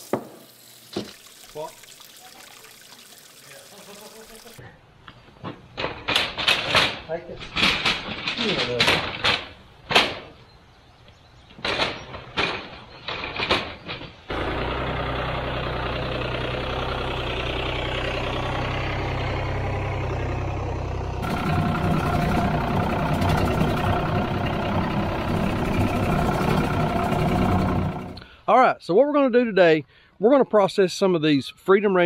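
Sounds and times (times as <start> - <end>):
engine running: 14.3 - 28.3.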